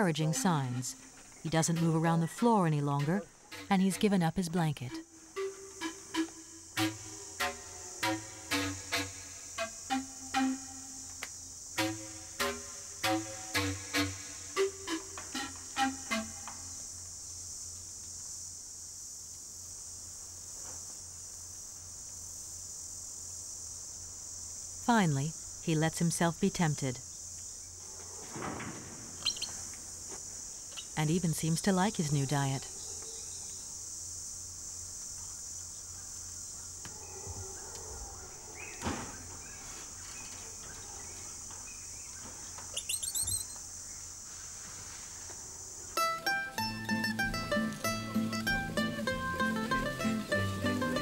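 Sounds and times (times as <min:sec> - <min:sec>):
insects chorus: 0:00.0 - 0:51.0
bird chirps: 0:29.2 - 0:29.6, 0:38.6 - 0:43.6.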